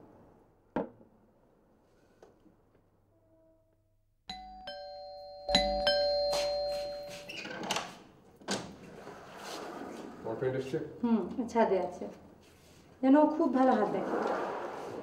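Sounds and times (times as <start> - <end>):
ding-dong doorbell chime: 4.3 - 7.5.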